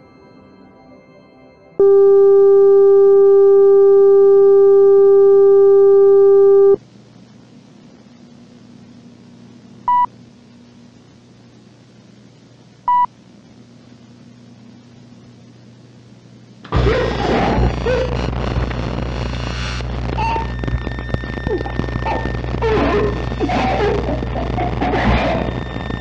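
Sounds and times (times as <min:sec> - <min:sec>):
tape hiss with low hum: 0:00.0 - 0:26.0
loud steady electronic tone: 0:01.8 - 0:06.8, 0:16.7 - 0:26.0
short high-pitched beeps: 0:01.8 - 0:06.8.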